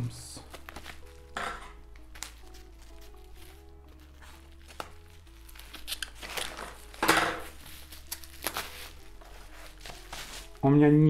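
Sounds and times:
bubble wrap crinkling: 0.4s - 11.0s
scissors snipping: 2.0s - 6.6s.

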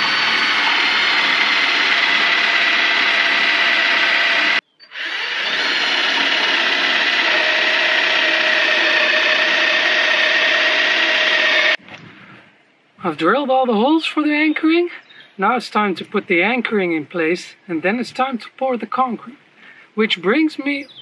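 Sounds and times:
cordless drill boring into concrete: 0.0s - 11.8s.

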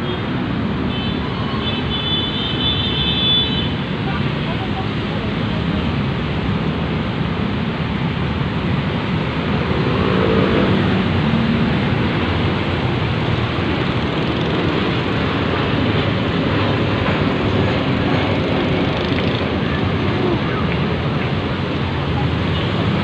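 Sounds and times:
road traffic roar: 0.0s - 23.0s.

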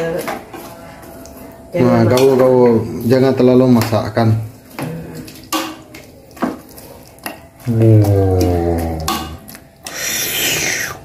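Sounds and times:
metal spoon stirring in pot: 0.2s - 11.0s.

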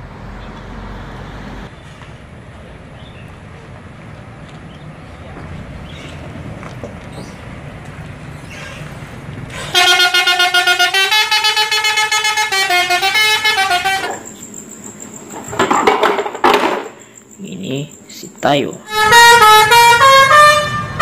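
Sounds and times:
musical bus horn tune: 9.5s - 14.5s, 18.8s - 21.0s.

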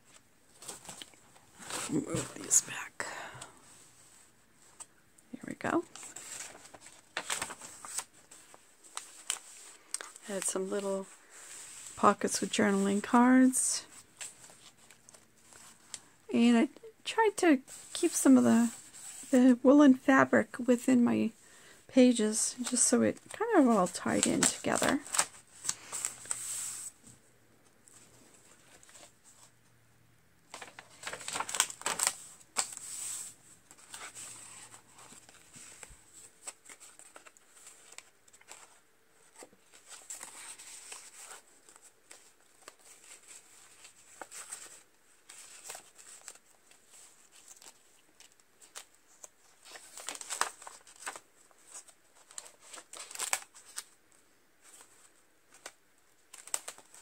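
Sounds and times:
paper pages turning: 5.8s - 10.7s, 22.6s - 27.2s, 30.5s - 54.0s, 54.6s - 57.0s.

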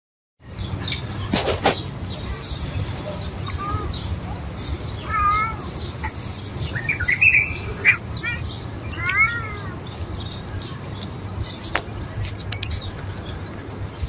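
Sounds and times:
cat meowing: 3.4s - 4.1s, 5.0s - 6.1s, 7.7s - 9.8s.

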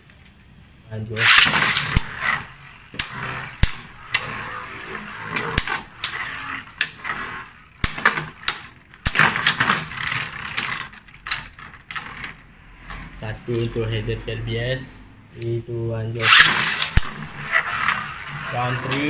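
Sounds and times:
spinning tops clashing clacks: 1.2s - 13.1s, 16.2s - 19.0s
spinning tops whirring scrape: 1.2s - 14.0s, 16.2s - 19.0s.

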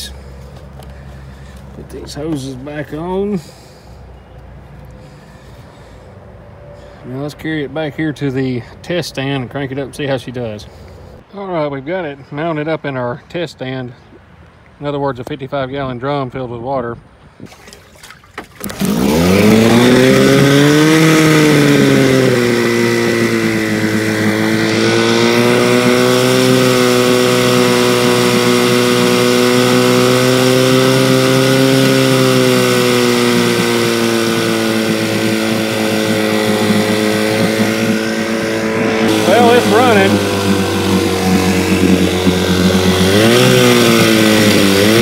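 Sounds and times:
outboard motor running: 0.0s - 6.2s, 17.6s - 45.0s.

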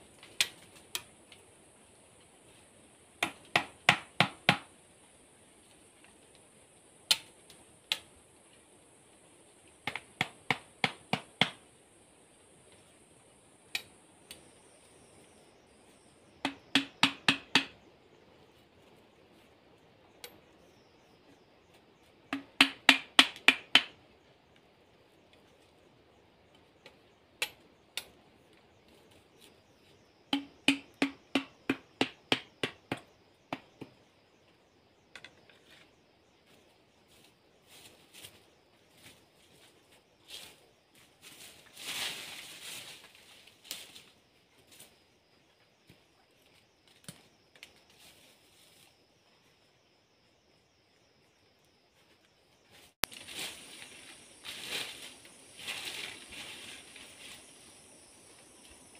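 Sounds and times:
hammering bamboo stakes: 3.2s - 4.7s, 9.8s - 11.6s, 16.4s - 17.8s, 22.3s - 24.0s, 30.3s - 34.0s.

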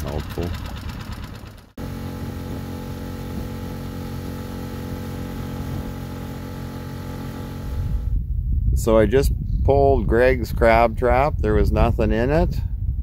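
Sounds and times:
outboard motor running: 0.0s - 8.2s.

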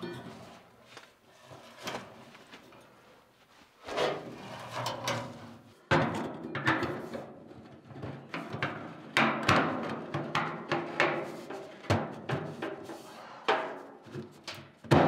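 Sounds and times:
hard objects knocking and clattering: 5.9s - 15.0s.

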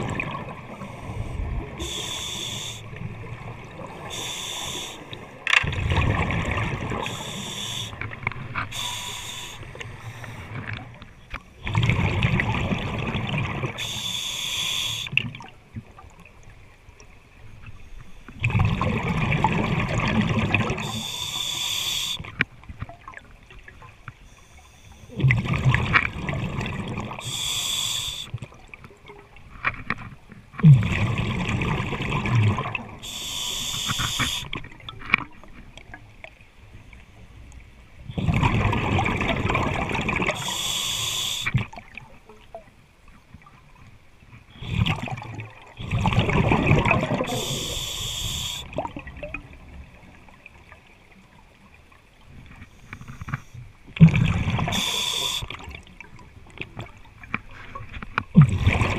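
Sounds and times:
regulator hiss: 1.8s - 2.9s, 4.1s - 5.1s, 7.0s - 8.0s, 8.7s - 10.4s, 13.8s - 15.1s, 20.8s - 22.2s, 27.2s - 28.3s, 33.0s - 34.5s, 40.4s - 41.6s, 47.3s - 48.7s, 54.7s - 55.6s
bubbling exhaled air underwater: 18.4s - 22.3s, 25.1s - 28.6s, 30.6s - 35.0s, 38.1s - 42.0s, 44.5s - 49.7s, 54.0s - 57.0s, 58.3s - 58.9s.

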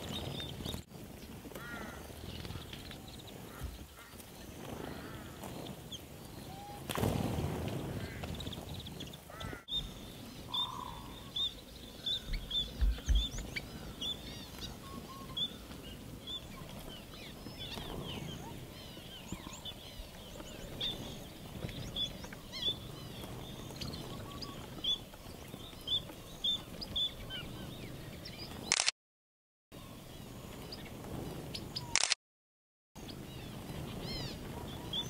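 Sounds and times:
low thumps: 12.2s - 13.6s.

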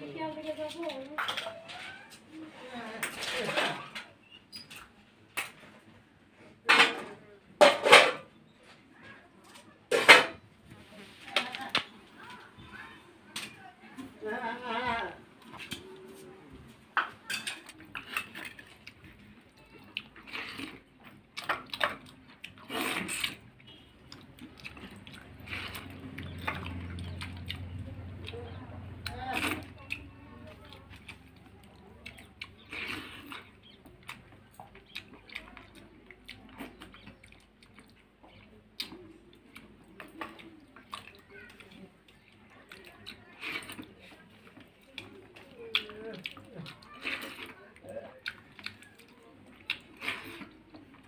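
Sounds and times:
person chewing: 17.6s - 51.0s.

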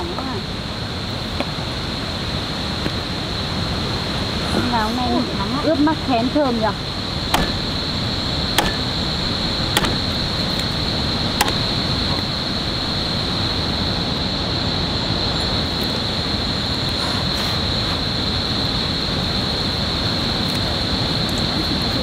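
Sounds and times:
steady rushing noise: 0.0s - 17.0s
high-pitched whine: 5.0s - 17.0s
sharp clicks: 7.3s - 13.1s.

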